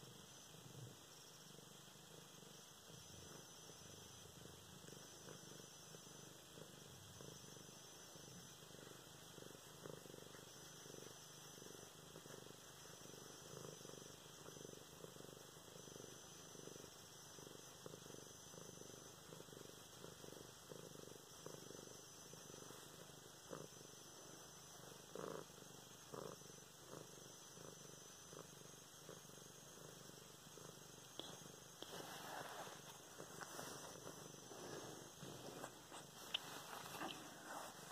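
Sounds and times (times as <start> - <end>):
cat purring: 0.0 - 37.9
soft rustles: 31.2 - 37.9.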